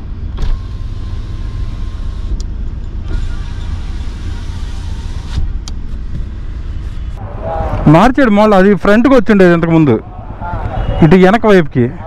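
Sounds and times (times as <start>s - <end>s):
car rumble from inside cabin: 0.0s - 7.9s.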